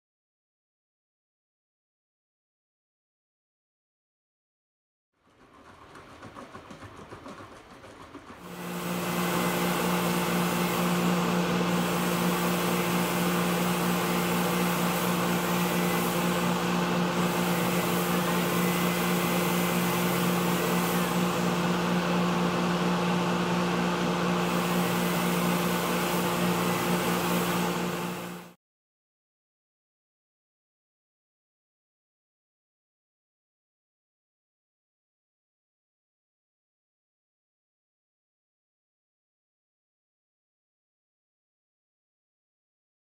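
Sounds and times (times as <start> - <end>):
motor hum: 5.3 - 28.5.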